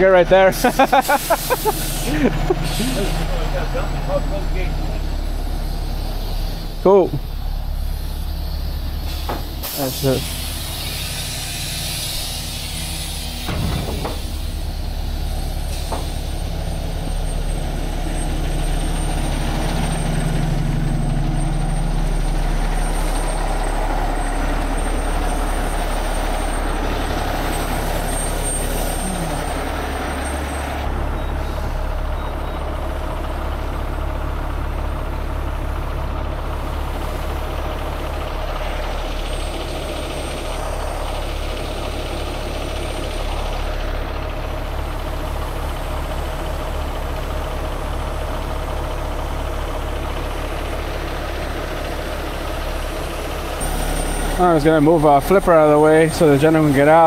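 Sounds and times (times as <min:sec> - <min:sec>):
diesel trucks idling: 0:00.0 - 0:57.0.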